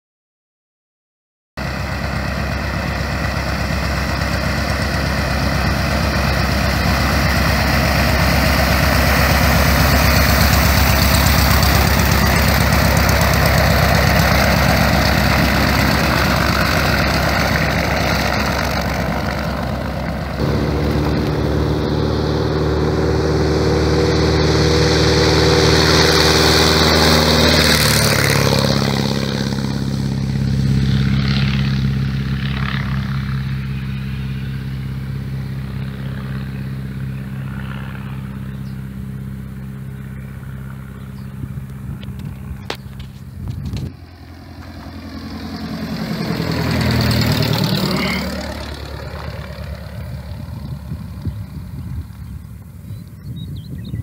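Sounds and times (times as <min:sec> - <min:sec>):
light aircraft engine and propeller: 0:01.6 - 0:54.0.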